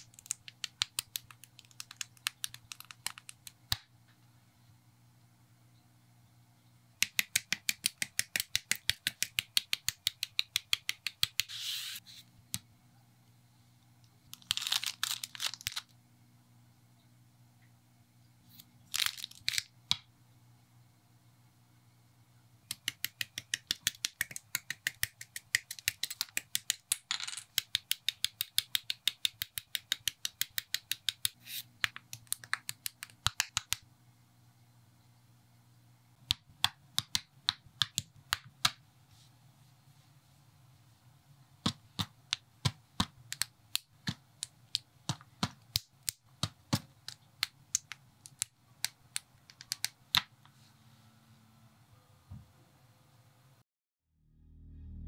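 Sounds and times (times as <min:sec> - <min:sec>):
faint low hum: 0:00.0 - 0:53.6
crinkling rustling: 0:14.4 - 0:15.9.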